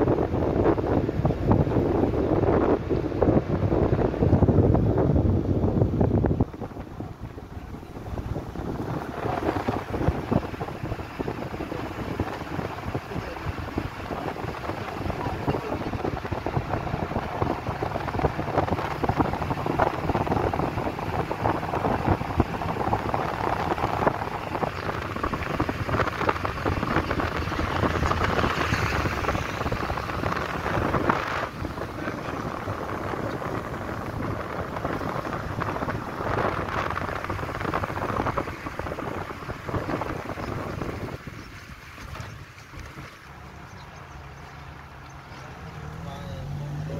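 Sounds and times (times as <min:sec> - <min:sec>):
car road noise: 0:00.0 - 0:46.9
wind on microphone: 0:00.0 - 0:46.9.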